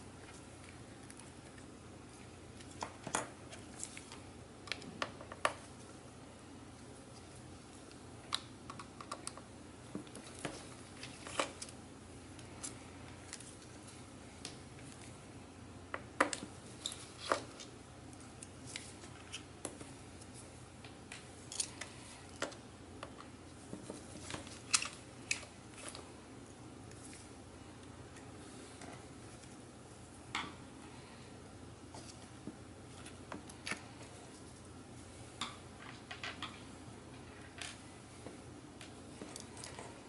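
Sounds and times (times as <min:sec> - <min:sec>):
small clicks and taps of parts: 0:07.9 - 0:10.6.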